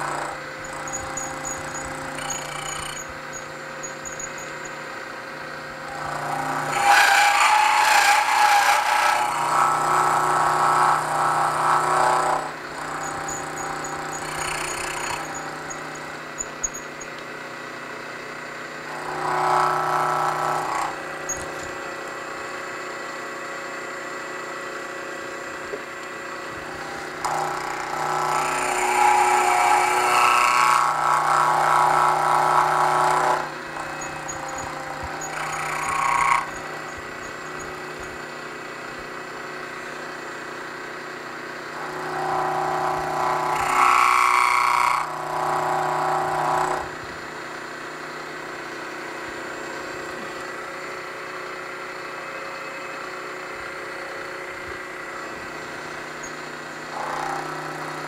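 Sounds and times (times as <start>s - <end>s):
milling machine cutting metal: 0.0s - 17.2s, 18.8s - 23.5s, 25.4s - 40.2s, 41.5s - 47.1s, 54.2s - 58.0s
milling machine running: 0.0s - 58.0s.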